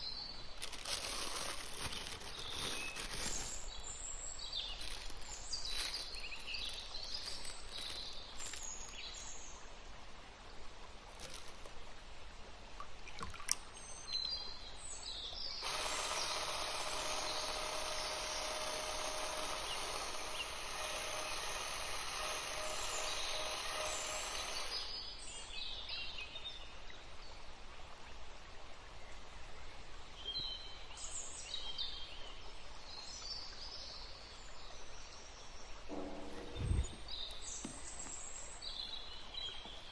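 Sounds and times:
electric whisk running: 15.6 - 24.9.

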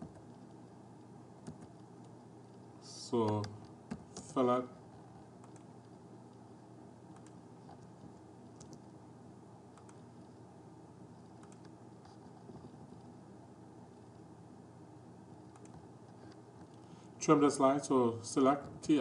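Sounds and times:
low background hum and hiss: 0.0 - 19.0
computer mouse and keyboard clicks: 5.4 - 6.0, 7.1 - 8.8, 9.8 - 10.1, 11.3 - 12.8, 15.5 - 16.8.

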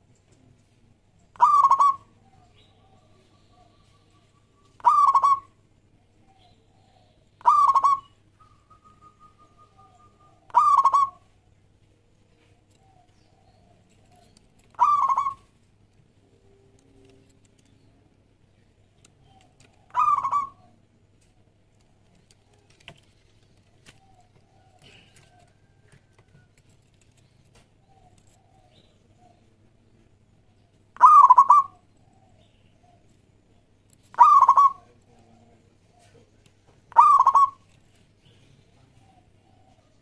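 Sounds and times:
dove cooing: 1.3 - 4.2, 4.8 - 11.4, 12.6 - 15.5, 19.1 - 20.8, 23.8 - 26.5, 31.0 - 33.1, 34.1 - 37.8.

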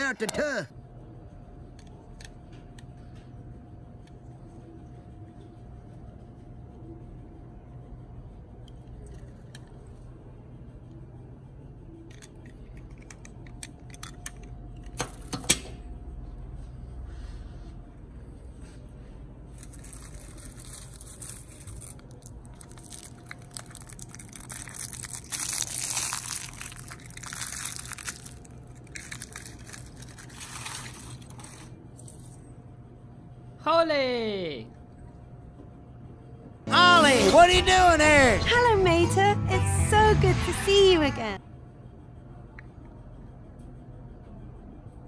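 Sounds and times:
plastic needles rustling: 19.5 - 32.4.

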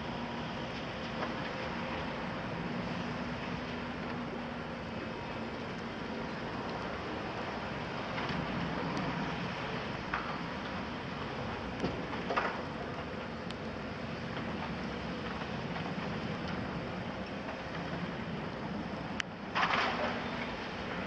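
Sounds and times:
excavator diesel engines running: 0.0 - 21.0.

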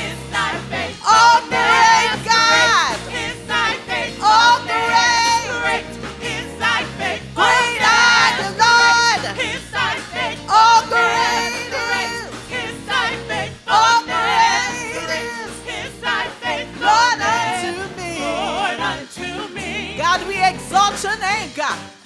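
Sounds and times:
guitar: 0.0 - 14.2
gospel choir singing with vibrato: 0.0 - 21.7
drums: 0.0 - 22.0
keyboard: 0.0 - 22.0.

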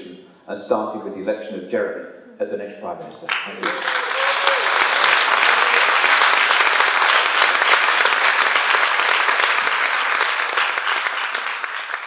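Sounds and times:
audience applauding: 3.3 - 12.0.

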